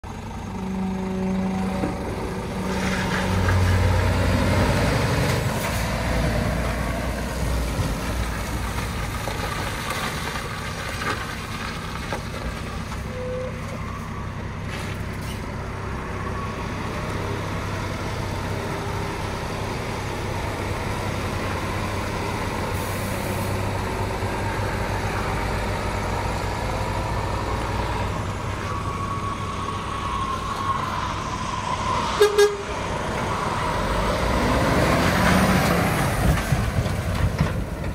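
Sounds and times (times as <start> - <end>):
diesel truck engine running: 0.0 - 37.9.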